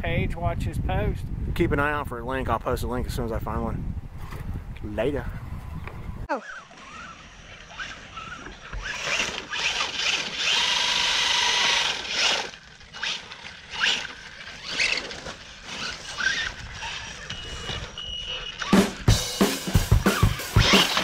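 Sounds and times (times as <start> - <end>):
electric motor whining: 6.3 - 18.8, 20.2 - 21.0.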